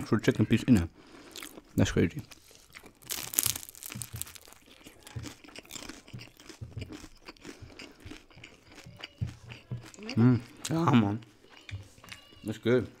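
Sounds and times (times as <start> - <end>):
soft chewing: 0.6 - 13.0
crisp crunch of a bite: 1.3 - 10.8.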